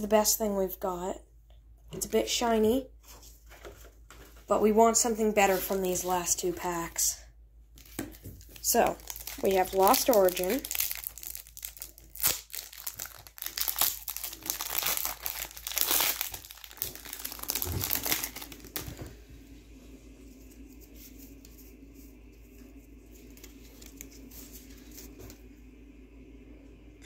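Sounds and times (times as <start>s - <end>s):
faint room hum: 0.0s - 27.0s
foil wrapper crinkling: 7.8s - 19.1s, 23.1s - 25.4s.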